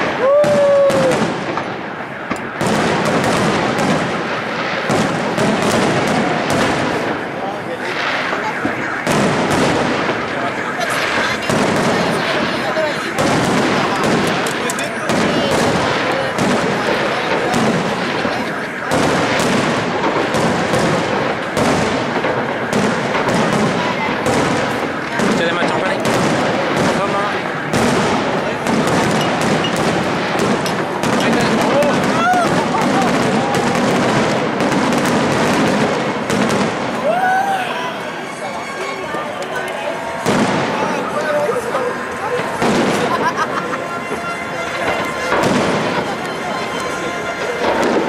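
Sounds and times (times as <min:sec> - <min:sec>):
fireworks bursting with bangs: 0:00.0 - 0:48.0
fireworks crackling: 0:00.0 - 0:48.0.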